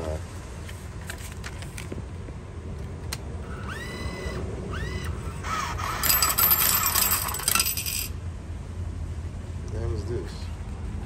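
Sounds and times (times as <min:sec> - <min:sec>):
bill acceptor motor whirring: 0:03.4 - 0:08.1
coins clattering into metal tray: 0:06.0 - 0:08.1.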